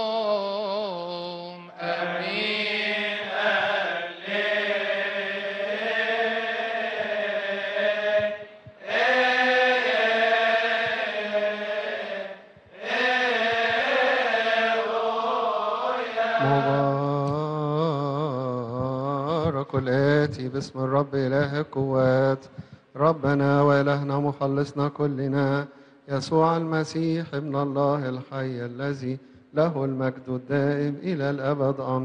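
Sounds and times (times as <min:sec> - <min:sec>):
man chanting: 0:00.0 - 0:02.8, 0:16.4 - 0:32.0
second lower voice singing: 0:16.4 - 0:17.9.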